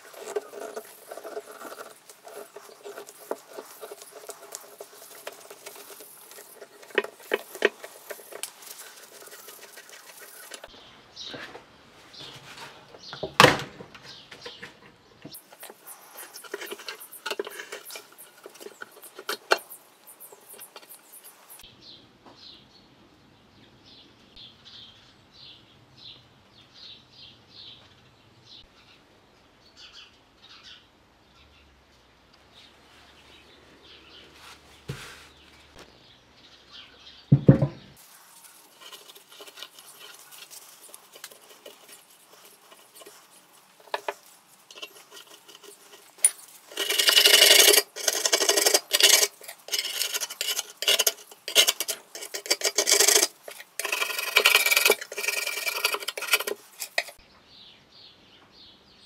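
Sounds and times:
putty knife scraping rust: 0:00.0 - 0:10.7, 0:12.2 - 0:21.6, 0:38.4 - 0:57.2.

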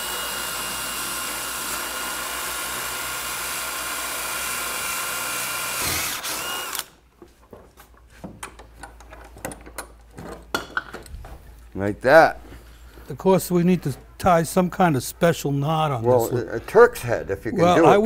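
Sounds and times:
electric drill boring wood: 0:00.0 - 0:06.9
clicks and knocks of handling tools: 0:07.2 - 0:11.4.

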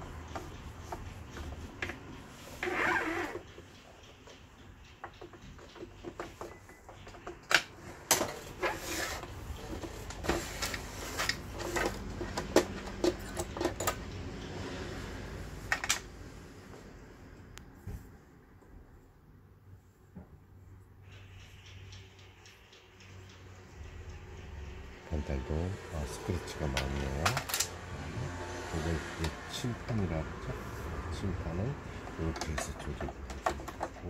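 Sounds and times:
plastic clicks taps and knocks: 0:05.0 - 0:08.3, 0:32.0 - 0:34.0
scraping rustle: 0:07.8 - 0:13.3.

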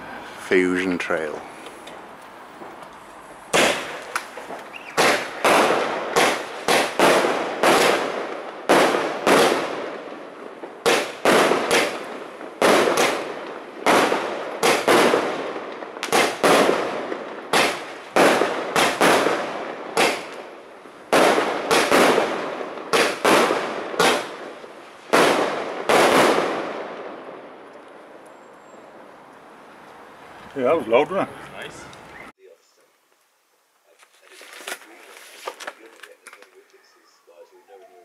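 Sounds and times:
firework shots banging and hissing: 0:01.4 - 0:28.2.

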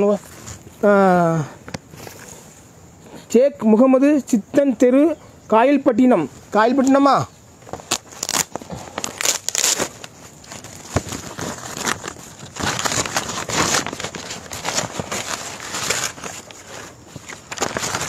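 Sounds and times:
paper rustling and crinkling: 0:07.6 - 0:18.0
paper envelope tearing: 0:07.7 - 0:18.0.

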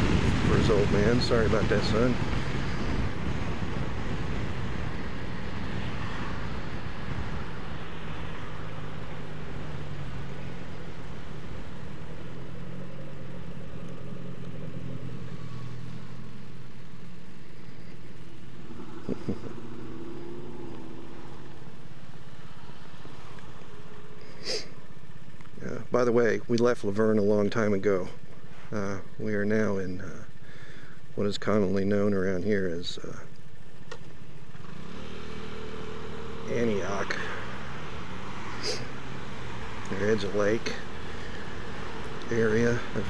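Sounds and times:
wind noise on microphone: 0:00.0 - 0:07.6
motorcycle engine running: 0:00.0 - 0:25.6.

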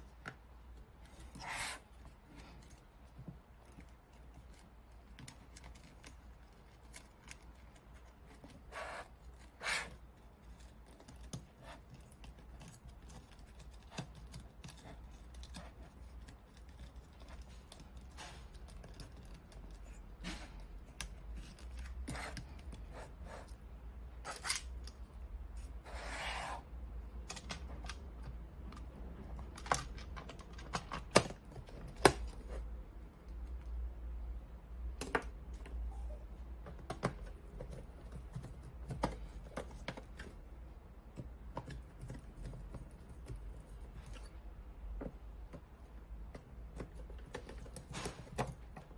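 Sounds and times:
plastic parts clicking and rustling: 0:27.0 - 0:32.5.

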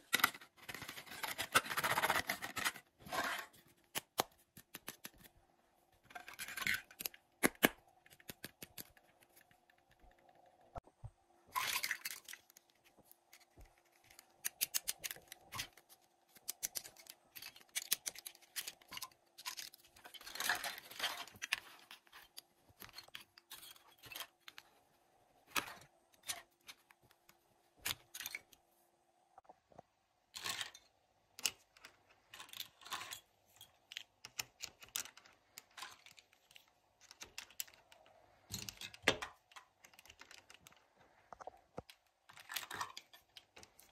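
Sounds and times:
plastic toy pieces clicking: 0:13.4 - 0:21.6, 0:33.8 - 0:40.9.

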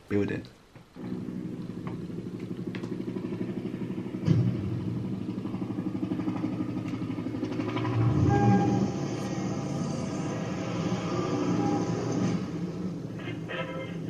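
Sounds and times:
vehicle engine idling: 0:01.0 - 0:14.0
sudden hit: 0:04.1 - 0:05.1.

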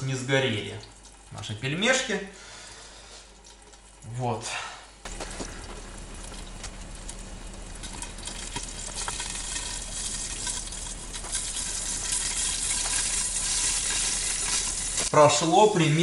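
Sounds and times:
dumplings sizzling in oil: 0:05.1 - 0:15.8.

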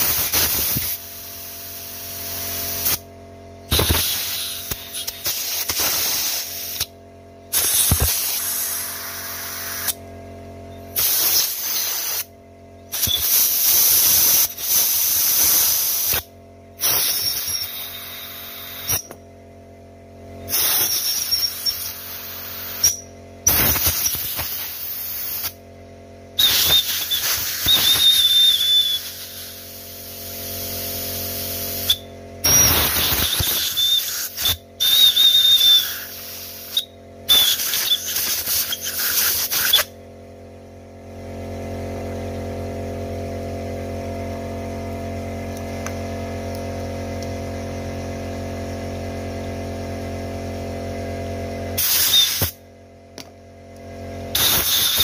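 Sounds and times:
compressed air blasts hissing: 0:00.0 - 0:03.0, 0:03.7 - 0:06.9, 0:07.5 - 0:10.0, 0:11.0 - 0:12.3, 0:12.9 - 0:19.2, 0:20.5 - 0:22.9, 0:23.5 - 0:25.6, 0:26.4 - 0:39.9, 0:51.8 - 0:52.6, 0:54.3 - 0:55.0
steady motor hum: 0:00.0 - 0:55.0
high whistle of rushing air: 0:26.4 - 0:29.4, 0:31.7 - 0:39.9, 0:51.8 - 0:52.5.

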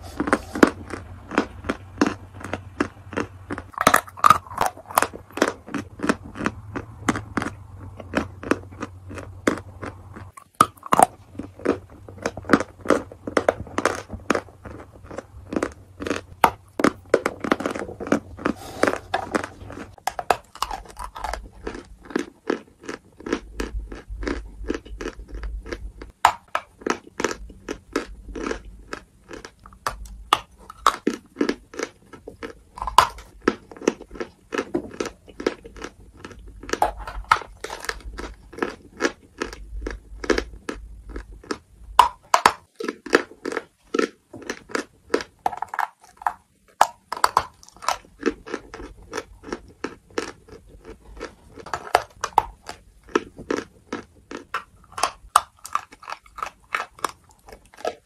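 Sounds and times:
chalk being chewed: 0:00.0 - 0:41.6.

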